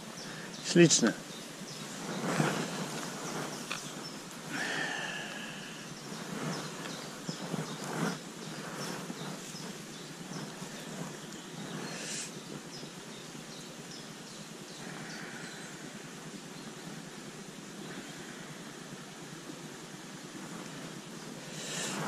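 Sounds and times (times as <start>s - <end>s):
steady background hiss: 0.0s - 22.0s
jacket fabric rustling: 1.6s - 4.6s.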